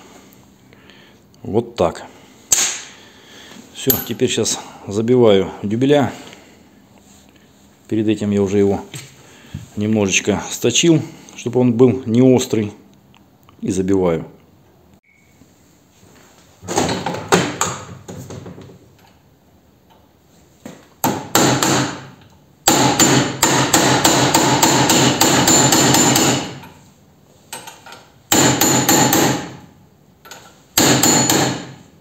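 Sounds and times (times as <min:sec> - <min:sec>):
hammer striking steel pins: 0:21.0 - 0:26.8, 0:28.3 - 0:29.6, 0:30.8 - 0:31.8.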